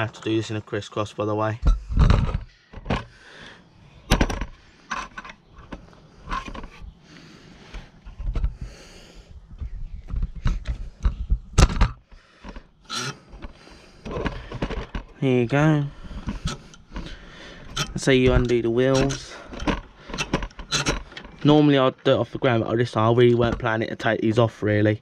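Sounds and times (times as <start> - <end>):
wheel nuts being loosened: 4.0 - 9.0, 10.1 - 21.8.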